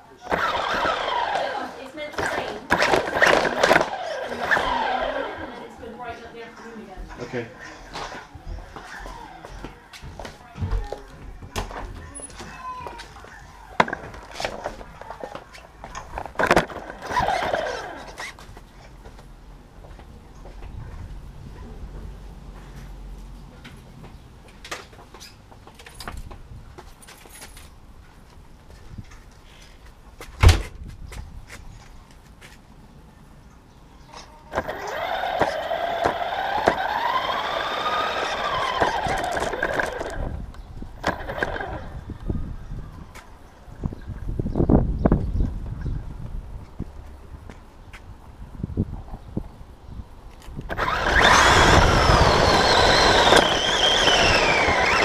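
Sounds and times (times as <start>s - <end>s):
electric rc car motor whining: 0.2s - 5.8s, 16.6s - 18.4s, 34.5s - 40.3s, 41.0s - 42.0s, 50.7s - 55.0s
toy car set down on concrete: 2.2s - 4.0s, 13.8s - 18.3s, 38.1s - 40.2s.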